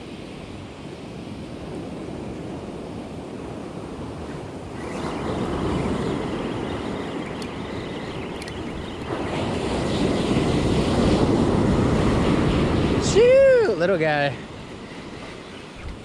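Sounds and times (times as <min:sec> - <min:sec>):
wind buffeting microphone: 0:00.0 - 0:16.0
surf washing up a beach: 0:09.0 - 0:16.0.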